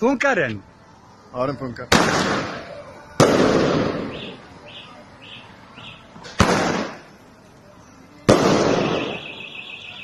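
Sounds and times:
firework bangs: 1.9s - 4.4s, 6.2s - 7.2s, 8.2s - 9.7s.

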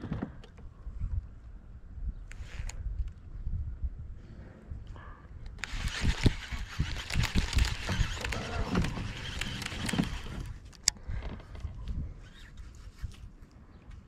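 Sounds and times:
fishing reel whirring and clicking: 5.5s - 10.6s.

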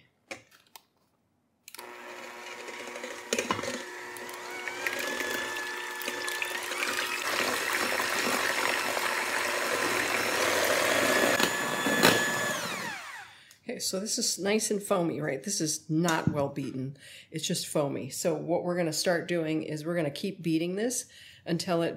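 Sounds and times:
electric hand mixer running: 1.7s - 13.4s.

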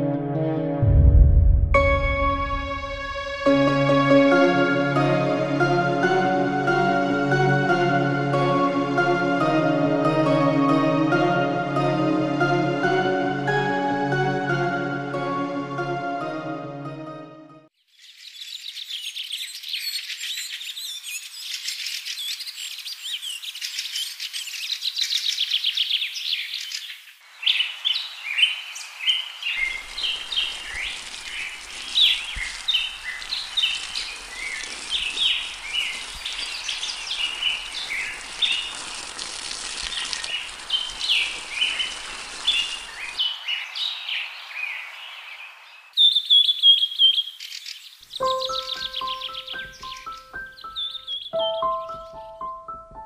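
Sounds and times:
birds chirping and trilling: 17.8s - 39.0s, 39.8s - 52.6s.

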